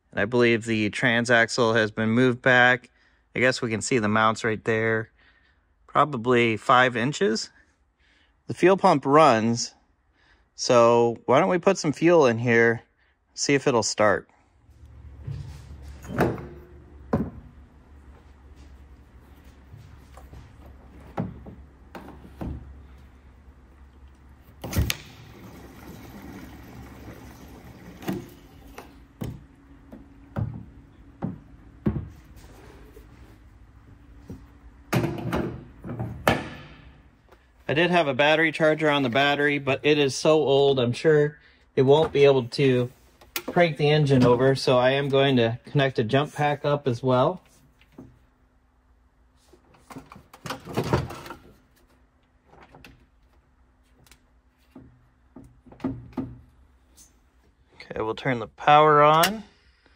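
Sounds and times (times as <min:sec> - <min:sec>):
fuel pouring from jerry can: 0:25.2 - 0:28.2.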